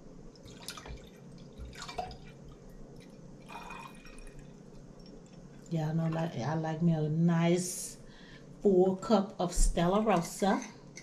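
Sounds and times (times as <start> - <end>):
wine pouring into a glass: 0.4 - 5.2.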